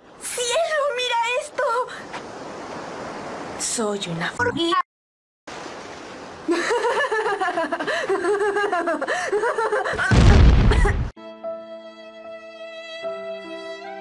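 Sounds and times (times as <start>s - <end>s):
cartoon explosion sound effect: 10.1s - 11.1s
violin music: 11.2s - 14.0s.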